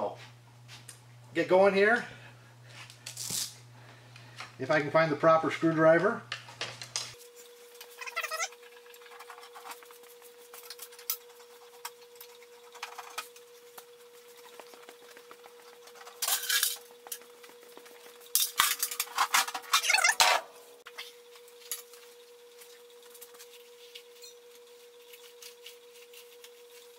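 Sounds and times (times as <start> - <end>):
faint steady hum: 0.0 - 26.9.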